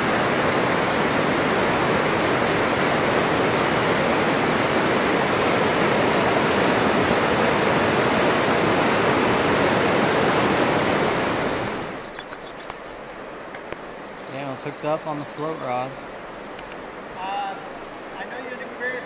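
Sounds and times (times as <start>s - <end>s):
whitewater rushing over rock: 0.0s - 12.1s.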